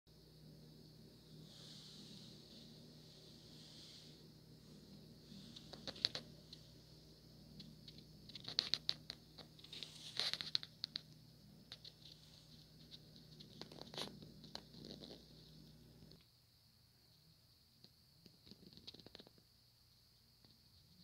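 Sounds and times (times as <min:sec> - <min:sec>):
low hum: 0:00.1 - 0:16.2.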